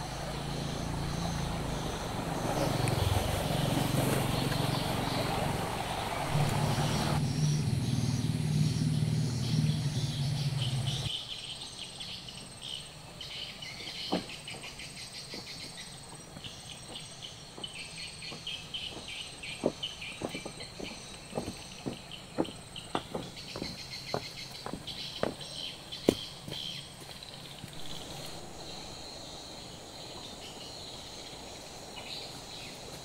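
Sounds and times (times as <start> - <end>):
insects chirping: 0.0 - 33.0
footsteps on bamboo bridge: 13.7 - 28.4.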